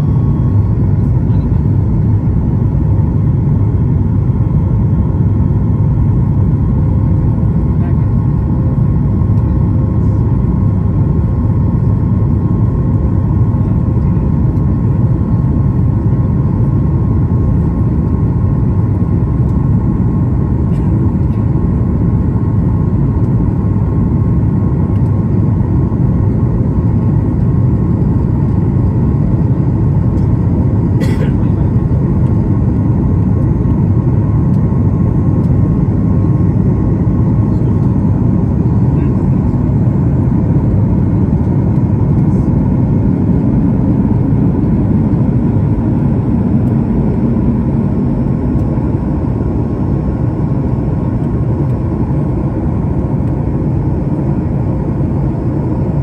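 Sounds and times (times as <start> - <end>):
jet engines roaring: 22.4 - 56.0.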